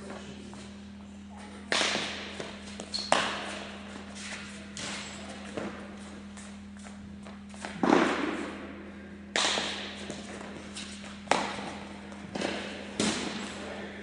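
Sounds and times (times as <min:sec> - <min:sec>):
steady low hum: 0:00.0 - 0:14.0
baseball thumps with echo: 0:01.6 - 0:03.8, 0:07.6 - 0:10.6, 0:11.2 - 0:13.7.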